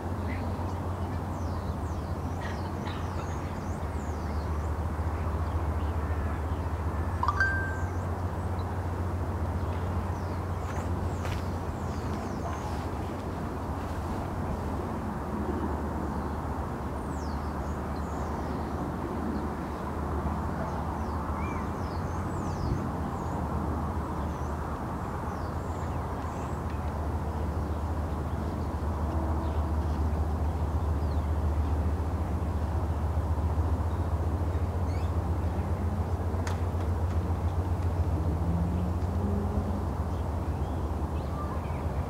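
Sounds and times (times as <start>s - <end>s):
distant traffic: 0.0s - 42.0s
faint high bird chirps: 7.2s - 8.1s.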